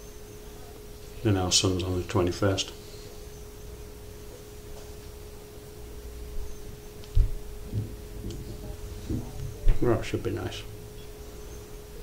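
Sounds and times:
steady one-pitch hum: 0.0 - 12.0
short low thump: 7.2 - 9.9.

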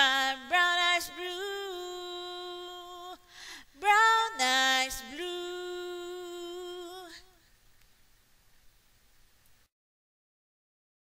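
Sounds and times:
woman singing a ballad: 0.0 - 7.6.

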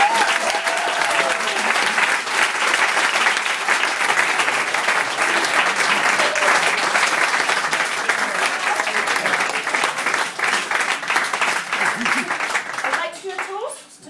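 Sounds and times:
audience clapping: 0.0 - 13.8.

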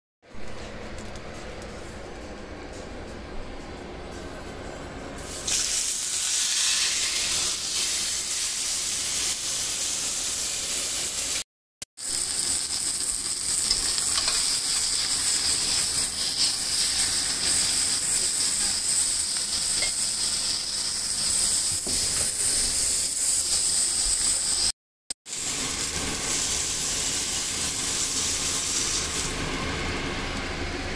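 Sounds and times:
meat sizzling in a skillet: 5.2 - 11.4, 12.0 - 24.7, 25.3 - 30.4.

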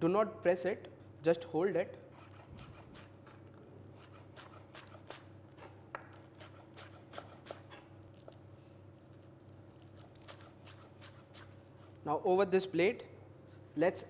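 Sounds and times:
knife chopping lettuce on board: 4.0 - 7.9, 10.2 - 11.5.

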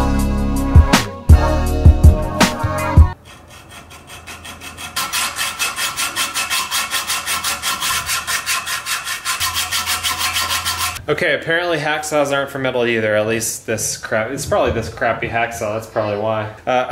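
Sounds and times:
background music with beat: 0.0 - 3.2
hacksaw sawing metal tube: 3.1 - 11.0.

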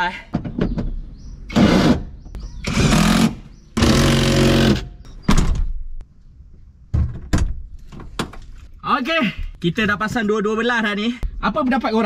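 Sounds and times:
cordless drill running: 2.7 - 4.8.

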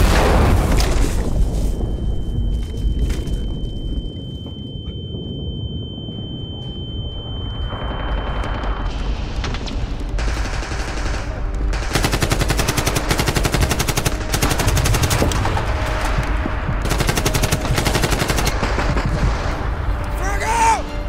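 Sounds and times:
deep rumble: 0.0 - 12.0
high steady ringing tone: 1.5 - 9.1
rapid automatic gunfire: 10.2 - 15.8, 16.8 - 19.6.

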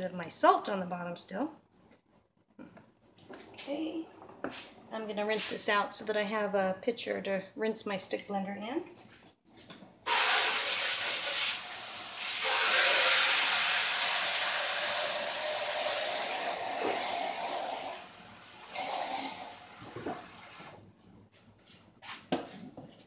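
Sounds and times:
tap water rushing into pitcher: 10.1 - 20.8.

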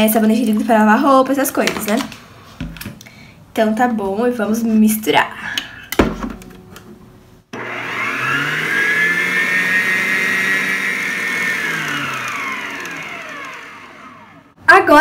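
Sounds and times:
stand mixer motor whine: 7.6 - 14.6.

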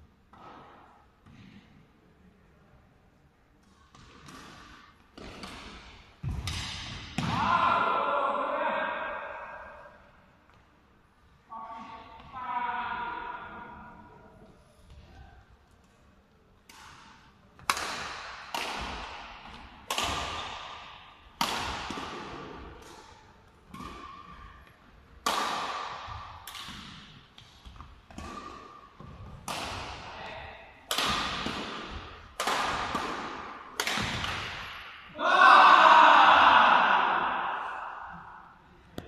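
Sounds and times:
badminton racket hitting shuttlecock: 3.7 - 7.3, 16.6 - 35.1.

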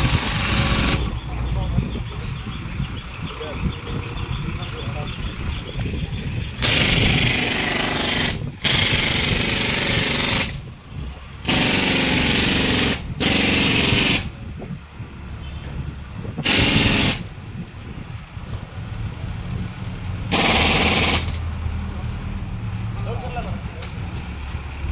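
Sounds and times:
machine hammering rapidly: 0.0 - 1.1, 6.6 - 10.6, 11.5 - 14.3, 16.4 - 17.2, 20.3 - 21.4.

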